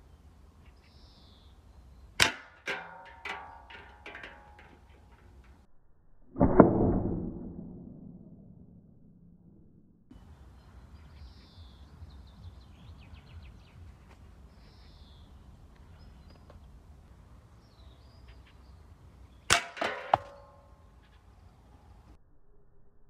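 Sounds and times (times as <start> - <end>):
air gun shot crack: 2.2 - 3.6
small metallic impacts: 2.2 - 5.7, 19.5 - 20.9.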